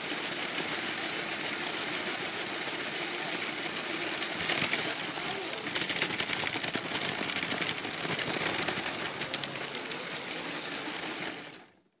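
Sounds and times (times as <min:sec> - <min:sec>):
toy train motor whirring: 0:00.0 - 0:11.7
wheels clicking on plastic track: 0:00.0 - 0:11.8.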